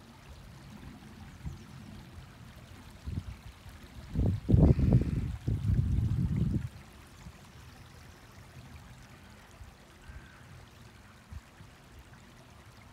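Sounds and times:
stream trickling over stones: 0.0 - 12.9
low rumble on microphone: 2.8 - 6.9.

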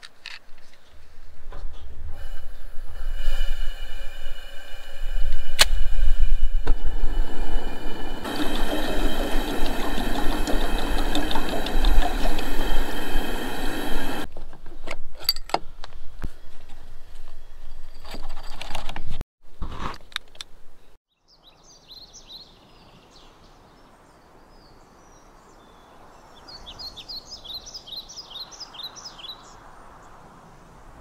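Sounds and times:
wind rumbling on microphone: 0.5 - 14.3
camp stove burner hissing: 2.1 - 14.3
sharp click: 5.6 - 5.8.

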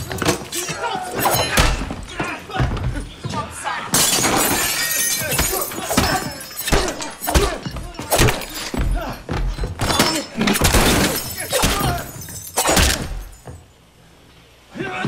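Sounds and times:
glass shattering: 0.0 - 2.0, 3.9 - 13.6
punches and thuds: 5.3 - 13.5.

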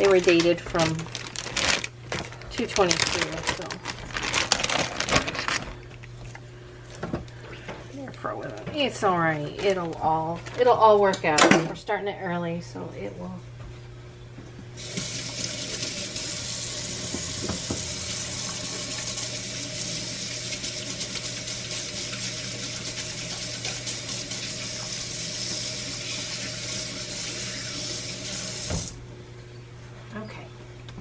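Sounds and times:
tap running into sink: 17.0 - 19.2, 28.6 - 29.0.

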